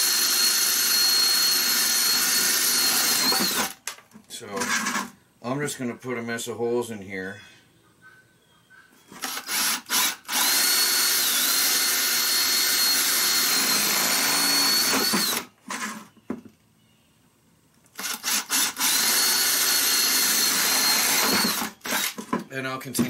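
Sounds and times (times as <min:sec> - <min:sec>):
drill boring through plastic: 0:00.0 - 0:03.8, 0:09.2 - 0:15.5, 0:18.0 - 0:22.2.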